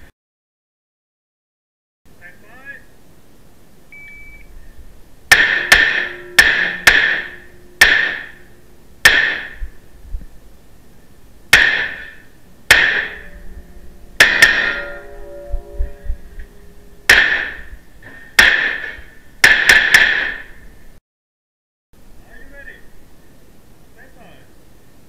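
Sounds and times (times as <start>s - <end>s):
faint ringing tones: 3.9s - 11.4s, 12.2s - 18.4s
gunshots echoing indoors: 5.3s - 8.4s.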